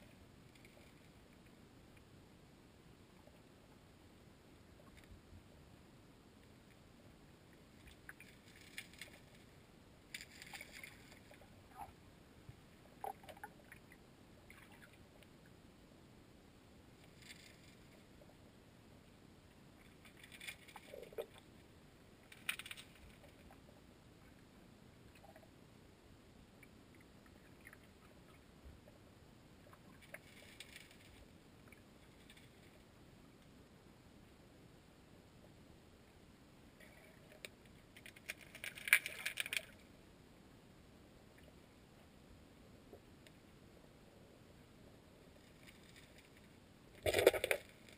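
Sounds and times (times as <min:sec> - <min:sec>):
small ticks: 0:00.0 - 0:02.1, 0:04.8 - 0:05.2, 0:07.5 - 0:09.5, 0:29.6 - 0:32.8, 0:36.8 - 0:39.9, 0:45.4 - 0:47.9
small clicks and crackles: 0:00.0 - 0:02.2, 0:04.7 - 0:05.3, 0:06.4 - 0:15.6, 0:17.0 - 0:25.6, 0:26.5 - 0:33.6, 0:36.8 - 0:39.9, 0:42.9 - 0:43.5, 0:45.2 - 0:47.9
muffled creek water underwater: 0:00.0 - 0:47.9.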